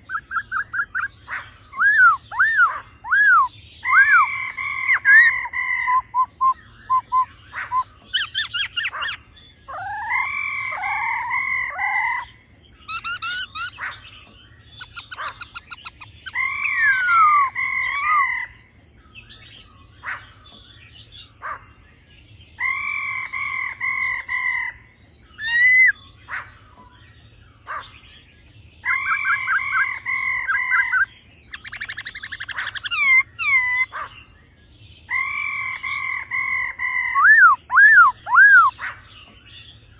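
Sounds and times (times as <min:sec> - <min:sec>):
bird song phrases: 0:00.0 - 0:39.9
bird rattling trills: 0:12.8 - 0:20.7.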